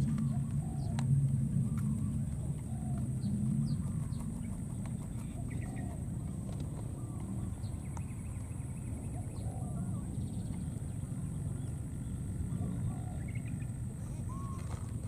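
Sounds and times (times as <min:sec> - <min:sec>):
low rumble: 0:00.0 - 0:15.0
faint animal chirps: 0:12.6 - 0:14.8.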